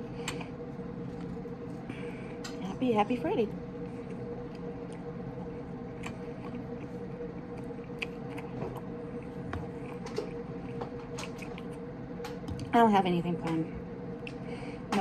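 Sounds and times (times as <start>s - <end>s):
steady hum: 0.0s - 15.0s
chewing: 3.8s - 11.9s.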